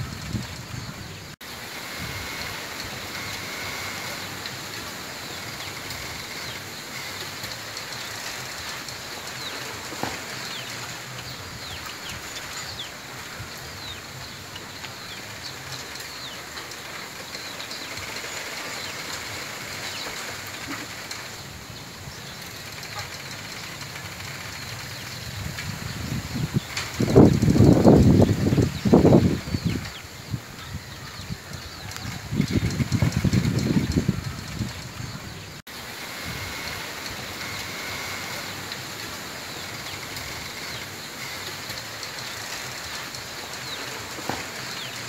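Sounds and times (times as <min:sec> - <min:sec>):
wind rustling through bamboo: 0:00.0 - 0:45.0.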